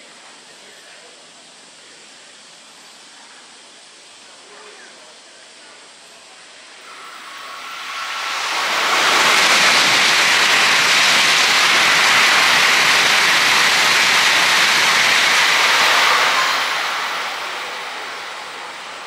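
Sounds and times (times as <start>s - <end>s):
train passing at high speed: 6.6s - 19.0s.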